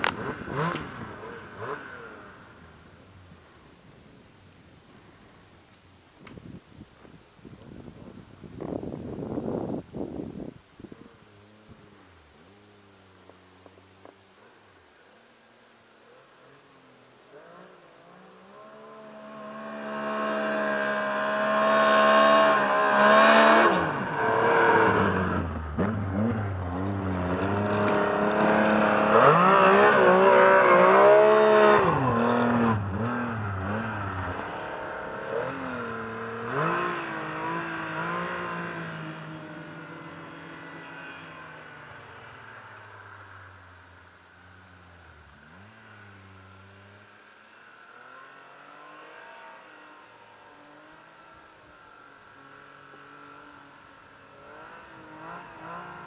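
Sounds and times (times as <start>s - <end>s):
snowmobile engine revving: 0.0s - 3.8s, 15.9s - 56.0s.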